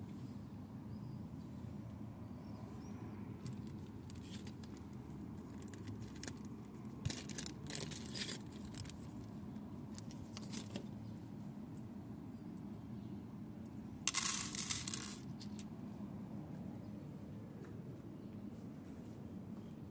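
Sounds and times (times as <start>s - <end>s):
plastic bag crinkling: 5.4s - 9.2s
paper clips jingling: 7.0s - 9.1s, 14.1s - 15.6s.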